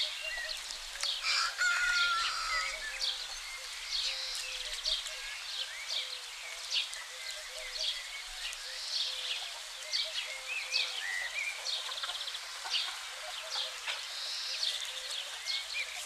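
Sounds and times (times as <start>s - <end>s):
outdoor hiss: 0.0s - 16.0s
small birds chirping: 0.0s - 16.0s.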